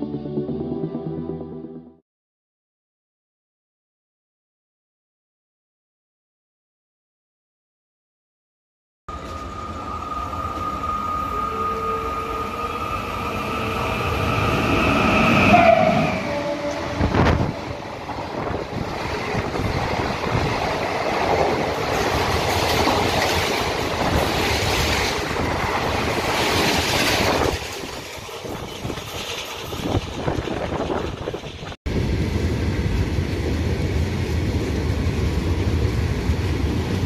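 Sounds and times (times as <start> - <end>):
train horn: 9.1 - 17.8.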